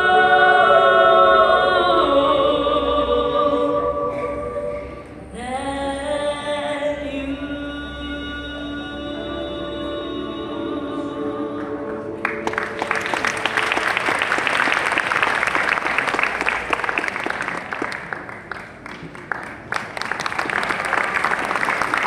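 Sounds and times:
choir singing: 0.0 - 13.4
audience applauding: 12.2 - 22.0.

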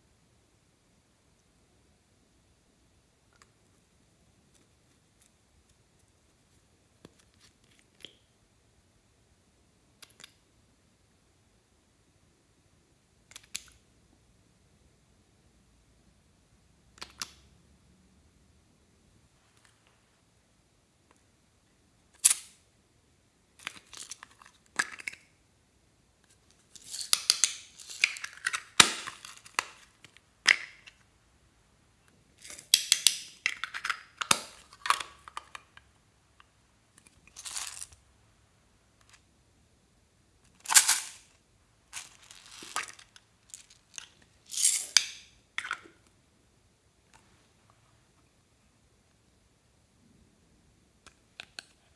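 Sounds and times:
crackling and rustling: 40.4 - 45.0.

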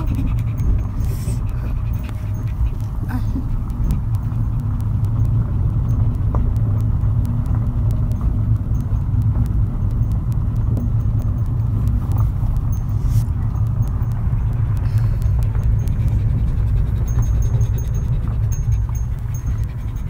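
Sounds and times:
car driving rumble: 0.0 - 20.0.

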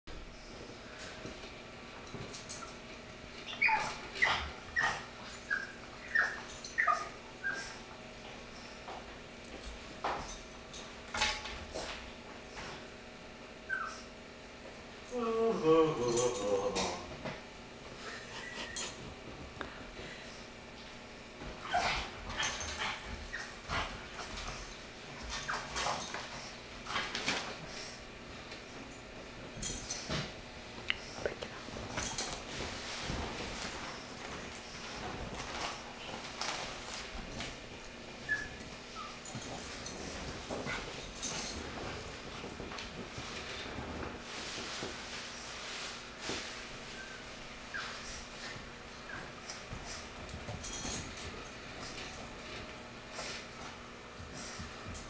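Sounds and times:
puppy whining: 3.4 - 7.8, 13.6 - 14.2, 18.0 - 19.1, 21.6 - 23.8, 38.2 - 40.0, 46.9 - 50.1.

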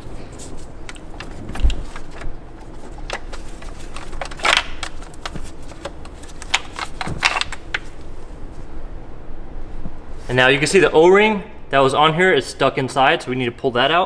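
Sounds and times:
cable and plastic parts rustling: 0.1 - 8.1.

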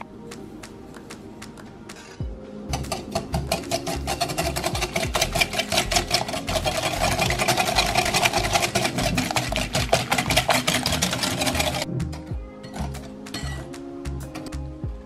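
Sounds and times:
whisk clinking against glass bowl: 2.7 - 11.8.

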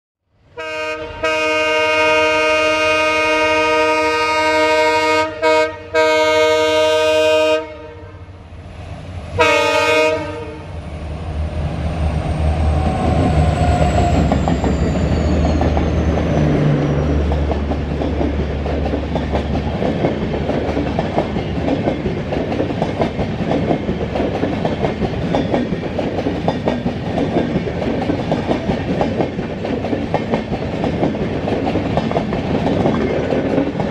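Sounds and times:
locomotive air horn: 0.6 - 8.4, 9.4 - 10.8
wheels clacking over rail joints: 12.8 - 33.9.

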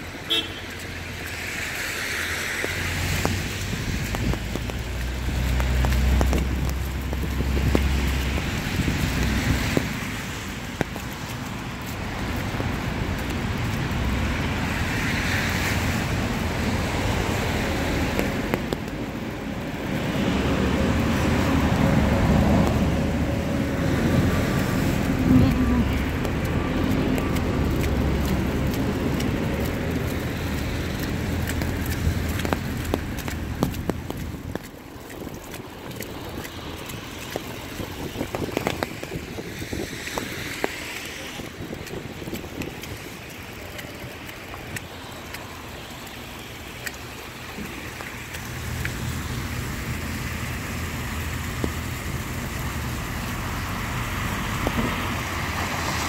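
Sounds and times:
low traffic rumble: 0.0 - 56.0
tyres hissing on wet road: 0.0 - 56.0
light ticks: 2.6 - 8.4, 25.7 - 39.0, 41.8 - 49.0.

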